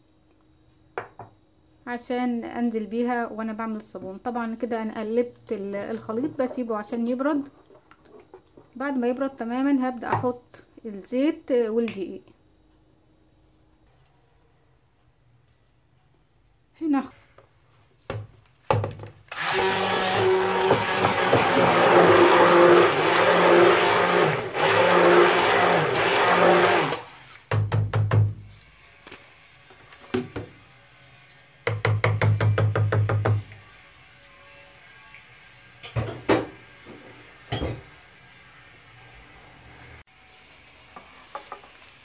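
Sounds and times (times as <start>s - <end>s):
hand blender running: 19.3s - 27.2s.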